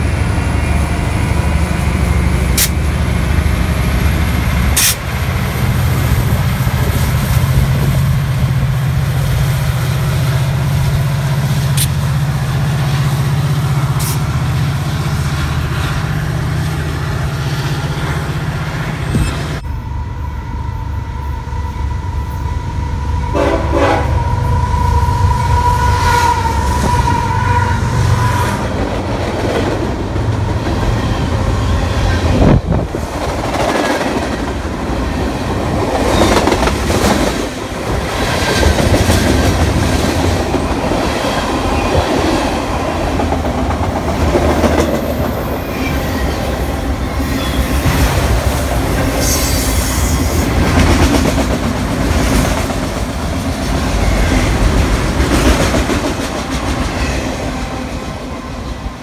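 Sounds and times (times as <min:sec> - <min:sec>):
train wheels clattering on rails: 0:00.0 - 0:15.9, 0:28.6 - 0:59.0
locomotive air horn: 0:04.8 - 0:05.1, 0:23.0 - 0:28.6.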